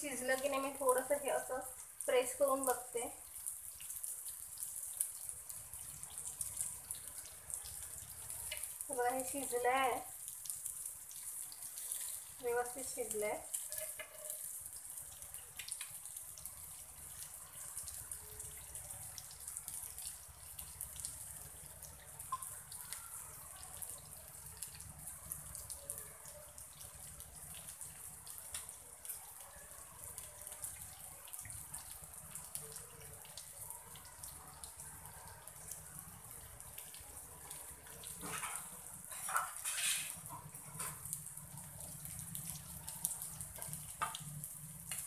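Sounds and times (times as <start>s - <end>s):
fish sizzling in oil: 0.0s - 45.0s.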